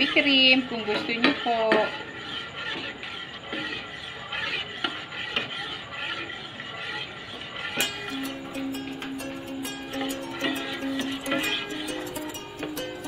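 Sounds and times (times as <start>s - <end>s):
spoon stirring thick sauce: 0.0s - 13.0s
plucked-string background music: 7.8s - 13.0s.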